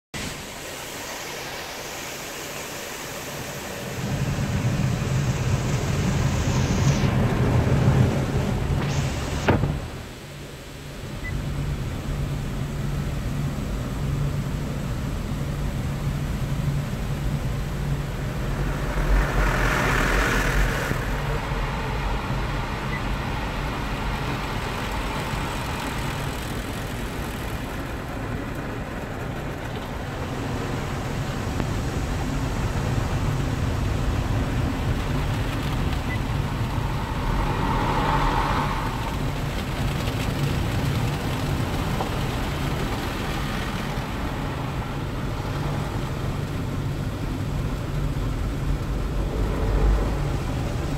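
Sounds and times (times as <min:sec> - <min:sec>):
water spray on car: 0:00.2 - 0:10.3, 0:12.0 - 0:50.9
rotating car wash brushes: 0:17.7 - 0:30.9, 0:32.8 - 0:50.9.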